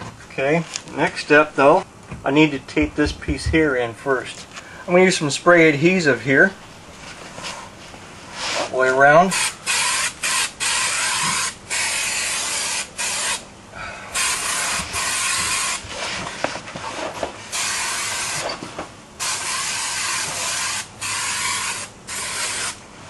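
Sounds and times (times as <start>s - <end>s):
aerosol can spraying: 9.3s - 13.4s, 17.5s - 18.5s, 19.2s - 22.8s.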